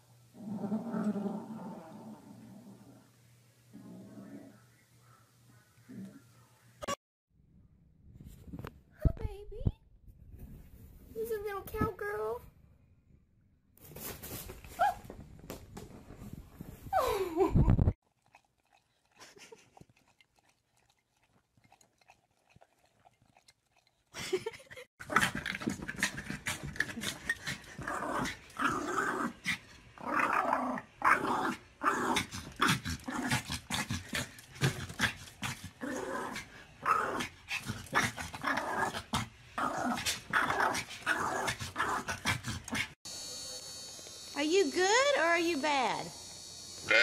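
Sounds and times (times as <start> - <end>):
small dog growling: 0.4 - 3.1, 3.7 - 4.6, 25.1 - 43.0.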